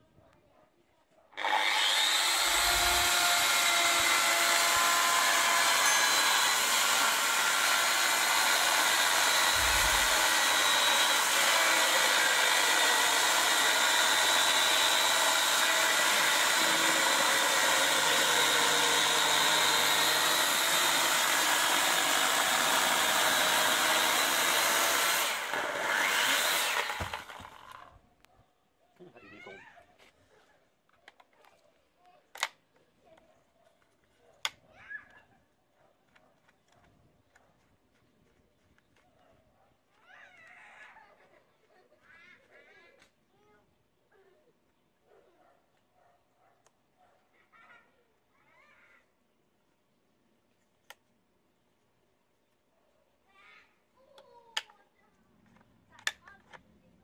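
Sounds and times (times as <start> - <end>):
electric chainsaw cutting log: 1.4 - 27.9.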